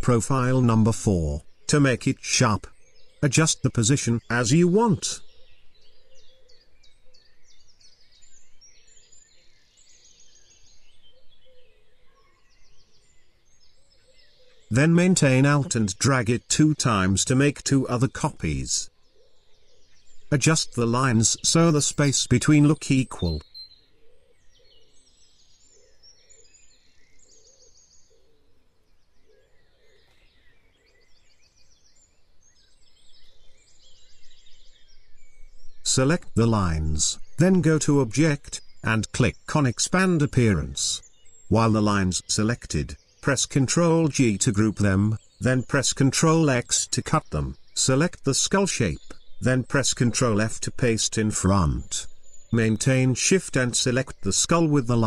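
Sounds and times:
low steady hiss: 0.0s - 6.0s, 19.8s - 23.6s, 30.0s - 55.0s
birds chirping and trilling: 0.0s - 55.0s.

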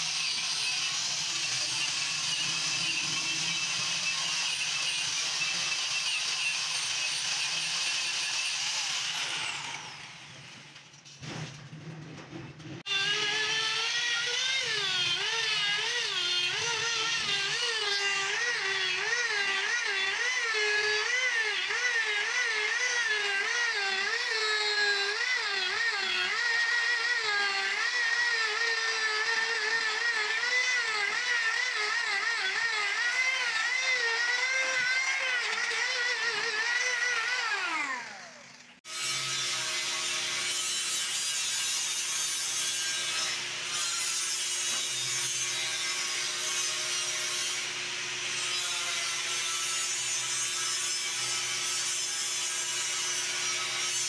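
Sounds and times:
angle grinder whine: 12.9s - 40.4s.

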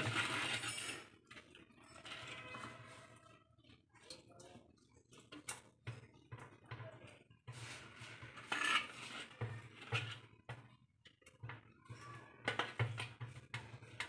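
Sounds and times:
ladle scraping clay pot: 0.0s - 3.8s, 7.4s - 10.4s.

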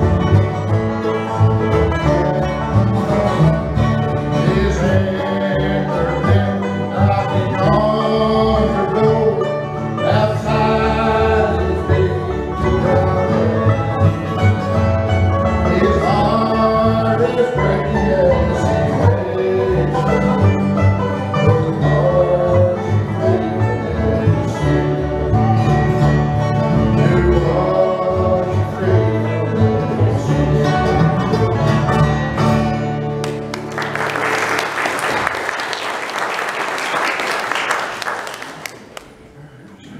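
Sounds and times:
bluegrass band playing: 0.0s - 38.1s
person singing: 4.4s - 14.2s, 15.6s - 26.0s, 26.8s - 31.8s
applause: 33.2s - 39.3s.

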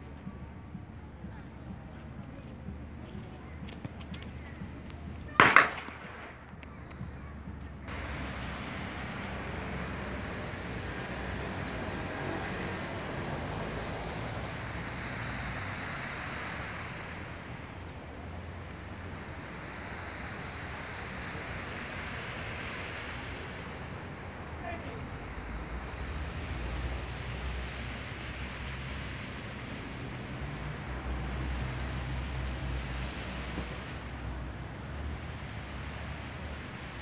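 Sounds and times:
sea waves washing on shore: 7.9s - 37.0s.

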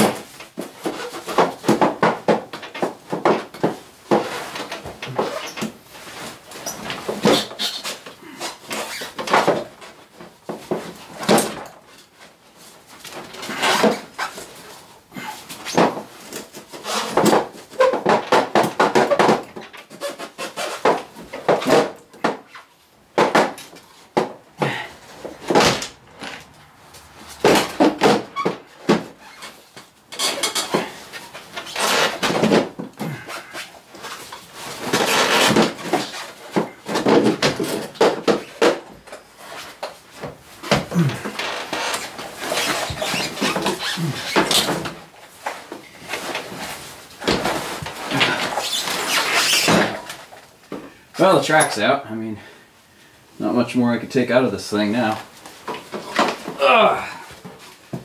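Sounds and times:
knocks clunks and scrapes: 0.0s - 52.6s
hard breathing: 15.0s - 15.6s, 24.6s - 25.3s.

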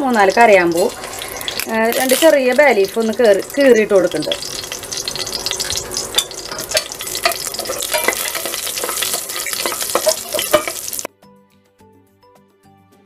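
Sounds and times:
spices sizzling in hot oil: 0.0s - 11.1s.

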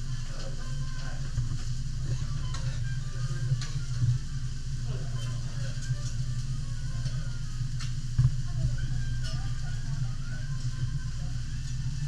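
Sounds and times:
steady low hum: 0.0s - 12.0s
food sizzling on a griddle: 1.7s - 12.0s.

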